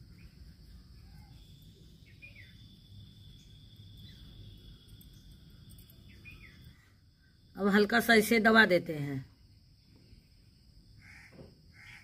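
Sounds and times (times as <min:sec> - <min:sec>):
high-pitched insect drone: 0:00.0 - 0:07.8.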